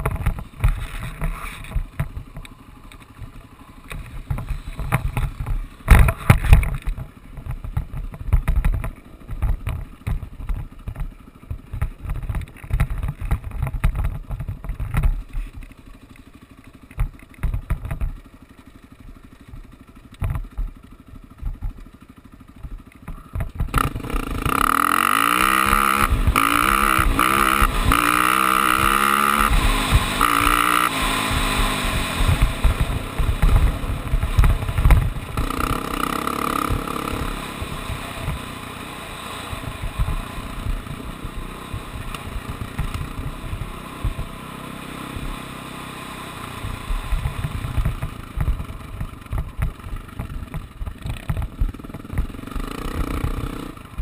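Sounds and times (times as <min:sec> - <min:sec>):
off-road vehicle engine revving: 0:23.7 - 0:49.4, 0:51.0 - 0:54.0.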